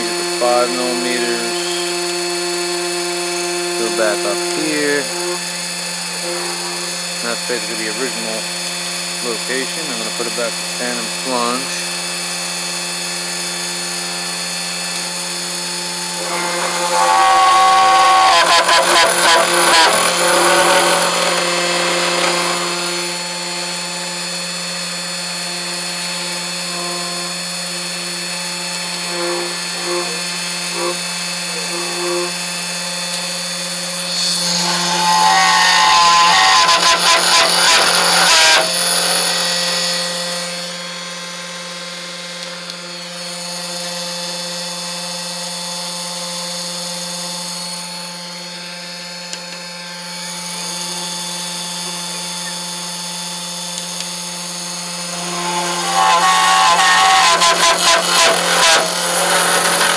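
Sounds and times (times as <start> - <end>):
bit drilling into panel: 0.0 - 11.6, 15.0 - 40.0, 55.0 - 59.9
cnc router spindle whine: 0.0 - 59.9.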